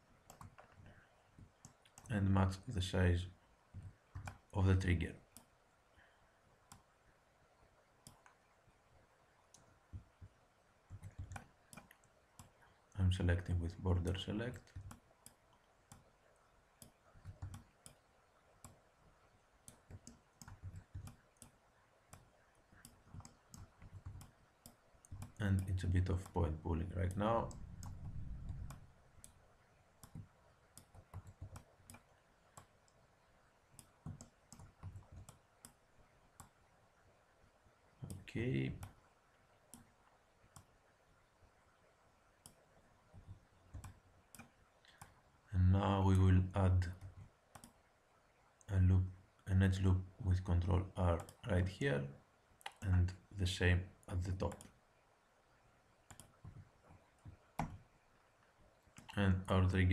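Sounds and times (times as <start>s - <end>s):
mouse and keyboard clicks: 3.8s - 4.4s, 56.1s - 56.6s.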